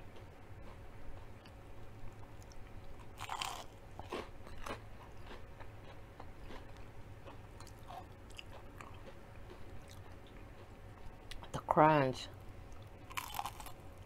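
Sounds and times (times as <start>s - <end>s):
crunchy food being chewed: 0.1s - 11.6s, 12.7s - 14.0s.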